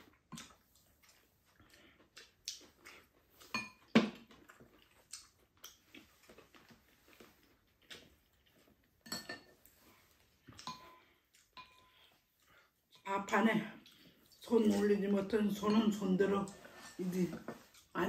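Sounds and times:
utensils clinking on ceramic bowls: 3.5 - 3.9, 9.0 - 9.6, 10.6 - 11.0, 14.6 - 17.4.

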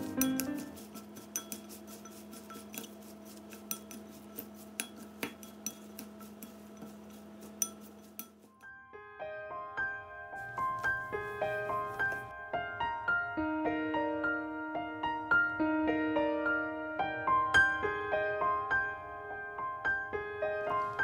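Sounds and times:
piano music: 0.0 - 21.0
chopsticks clicking on ceramic bowl: 0.1 - 8.5.

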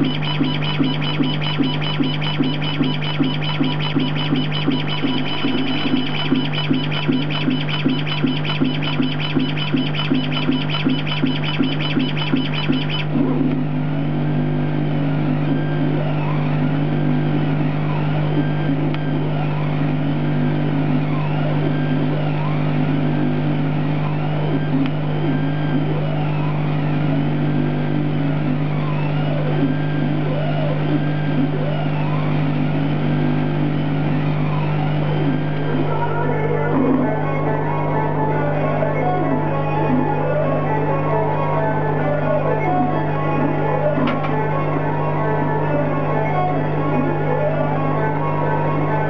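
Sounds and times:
stepper motors whining: 0.0 - 13.5
steady low hum: 0.0 - 49.0.

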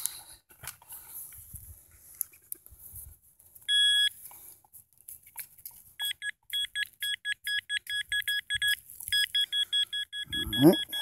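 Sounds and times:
rustling of soil: 0.0 - 6.0
metal detector beeping: 3.7 - 4.2, 6.0 - 11.0.

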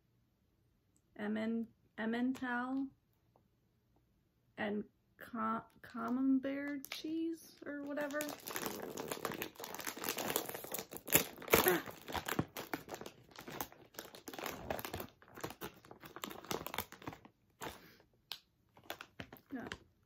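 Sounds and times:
chip bag crinkling and tearing: 7.8 - 19.9.

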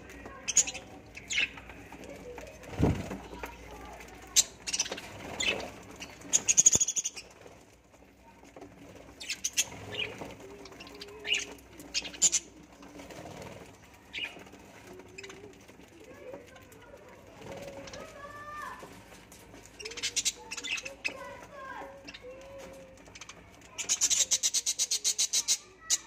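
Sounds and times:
wings fluttering: 0.0 - 26.0
budgerigars chirping: 4.4 - 7.3.

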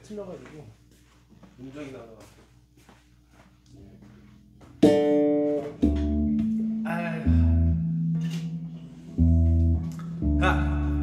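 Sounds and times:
guitar chords and notes: 4.1 - 11.0
deep bass note: 5.8 - 11.0.

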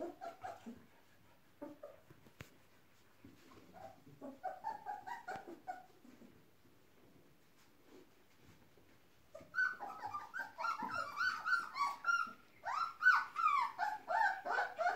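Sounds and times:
puppies whining and yipping: 0.0 - 2.1, 3.3 - 6.3, 9.3 - 14.9
faint rustling: 0.0 - 14.9.

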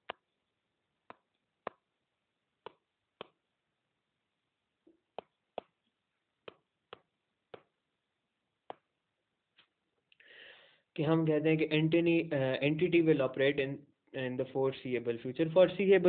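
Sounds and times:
stylus tapping on tablet screen: 0.0 - 2.0, 2.6 - 3.6, 4.8 - 7.8, 8.6 - 9.6.

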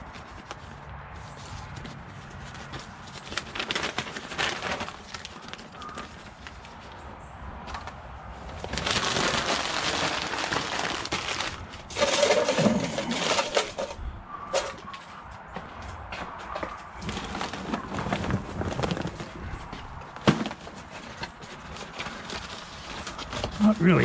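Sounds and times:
newspaper crumpling: 0.0 - 7.0, 8.4 - 14.0, 17.0 - 24.0
paper stuffed into metal grill: 2.5 - 6.6, 8.5 - 14.8.

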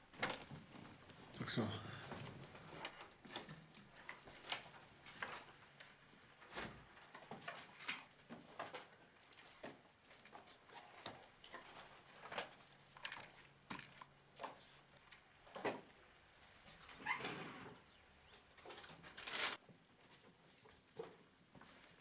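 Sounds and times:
soft handling clicks and rustles: 0.1 - 17.2.

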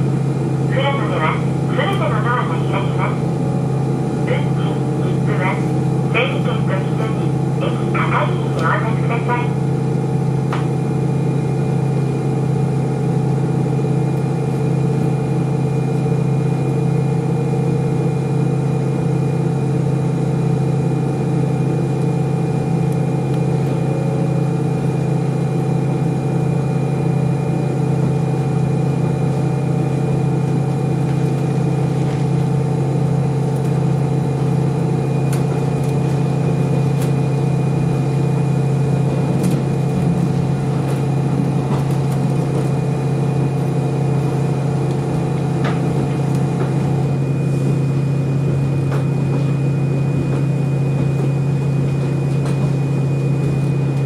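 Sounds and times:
diesel railcar engine drone: 0.0 - 54.0
train running noise: 38.9 - 53.4.

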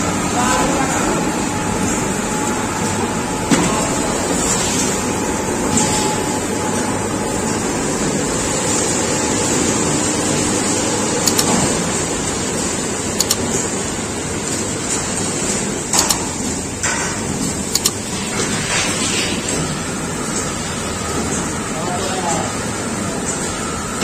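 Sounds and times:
chips machine drum running: 11.1 - 14.0, 14.6 - 18.1
short clicks: 11.2 - 11.6, 13.2 - 13.4, 16.0 - 16.2, 17.7 - 18.0.

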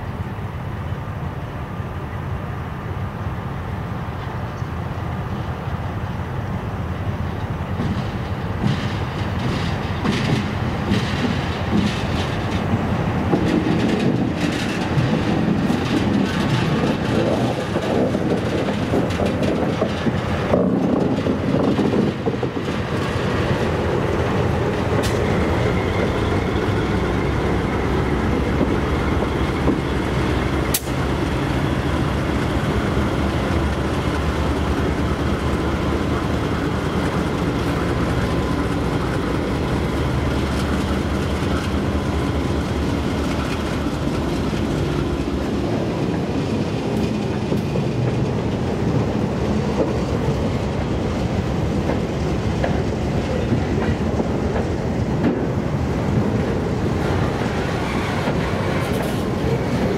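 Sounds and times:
diesel locomotives passing: 0.0 - 59.9
train wheels clacking over rails: 7.2 - 59.9
sharp click: 30.7 - 31.0.

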